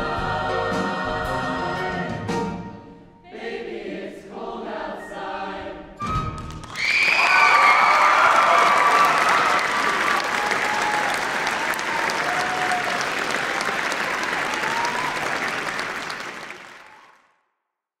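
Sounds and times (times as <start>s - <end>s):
audience applauding: 6.5s - 17.3s.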